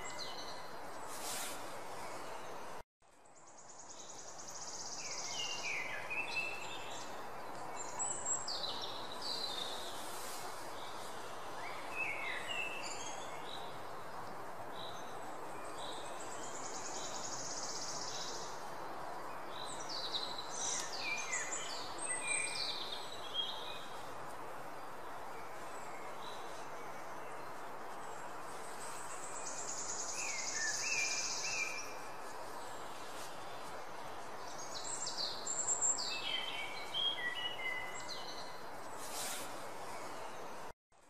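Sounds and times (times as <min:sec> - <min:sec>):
background hiss: 0:00.0 - 0:41.0.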